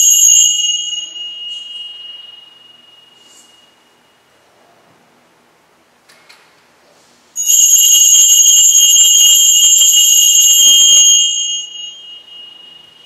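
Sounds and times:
altar bells jingling: 0.0 - 3.7, 7.4 - 13.0.

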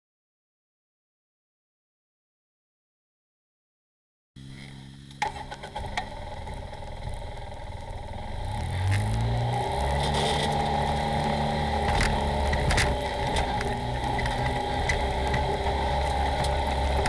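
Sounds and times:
off-road vehicle engine: 4.4 - 17.0.

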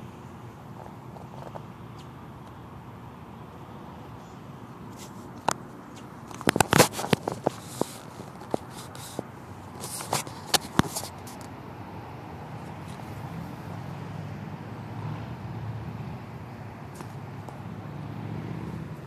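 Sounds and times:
phone handling clicks and crackles: 5.0 - 11.5.

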